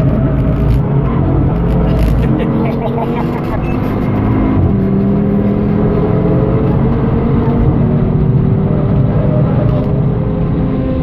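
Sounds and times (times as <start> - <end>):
car engine at full throttle: 0.0 - 11.0.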